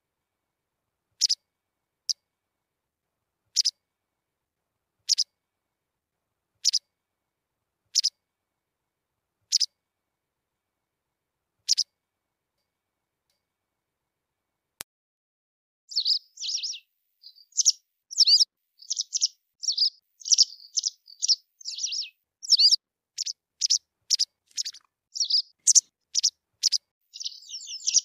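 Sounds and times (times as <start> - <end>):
wagtail high double calls: 15.9 - 28.0.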